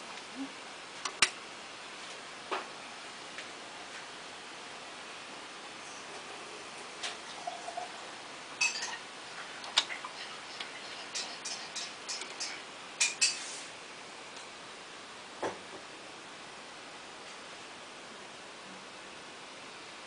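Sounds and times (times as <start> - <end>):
turntable mechanical clicks: 1.0 - 1.4.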